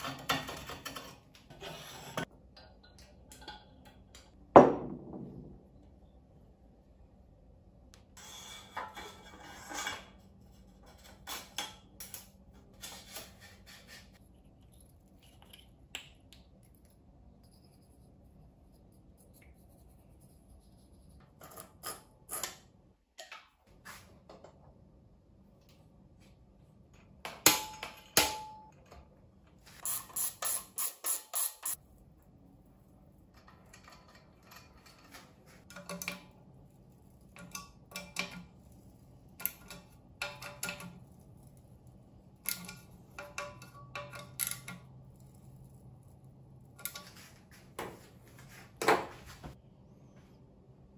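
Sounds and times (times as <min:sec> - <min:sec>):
metal tools clicking and clinking: 0:39.3 - 0:41.2, 0:42.4 - 0:45.6.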